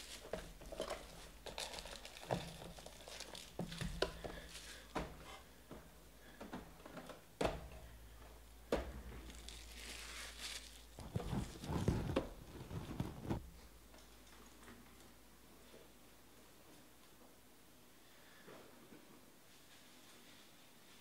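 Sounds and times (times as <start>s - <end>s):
foil wrapper crinkling: 0.0s - 4.8s, 9.3s - 13.4s.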